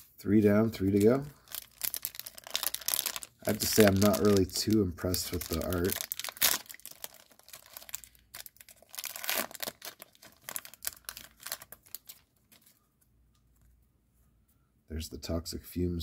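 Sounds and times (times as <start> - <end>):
wrapper crinkling and tearing: 0.8 - 12.8.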